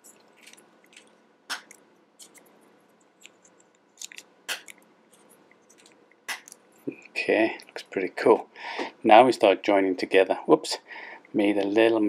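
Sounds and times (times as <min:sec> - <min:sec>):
plastic pieces snapping together: 0:00.4 - 0:02.4, 0:03.2 - 0:04.8, 0:05.7 - 0:06.6.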